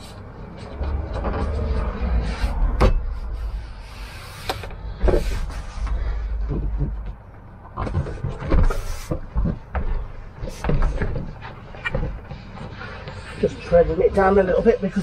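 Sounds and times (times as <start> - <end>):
low rumble: 0.0 - 8.3.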